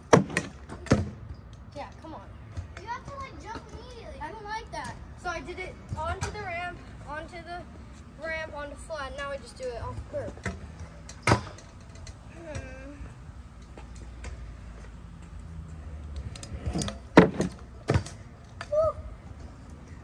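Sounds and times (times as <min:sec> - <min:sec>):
scooter wheels rolling: 0:08.2 - 0:20.0
scooter landing clack: 0:10.4 - 0:11.8, 0:16.6 - 0:18.8.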